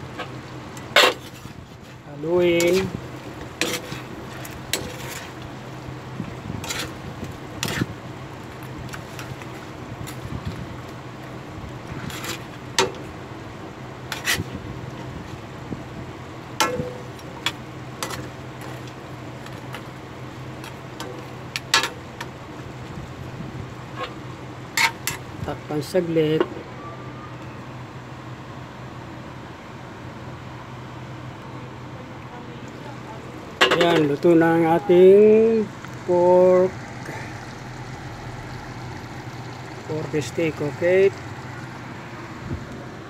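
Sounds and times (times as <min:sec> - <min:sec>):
metal spatula scraping a wok: 0:00.9 - 0:01.6, 0:02.5 - 0:03.0, 0:03.6 - 0:05.4, 0:06.6 - 0:07.0, 0:07.6 - 0:07.9, 0:12.0 - 0:12.6, 0:14.1 - 0:14.5, 0:24.8 - 0:25.3
steady low hum: 0:27.8 - 0:43.0.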